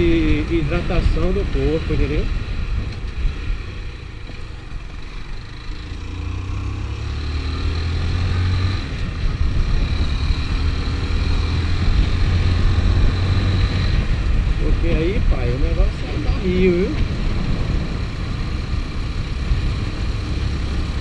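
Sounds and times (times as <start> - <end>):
motorcycle engine accelerating: 0.0 - 21.0
wind on microphone: 8.8 - 21.0.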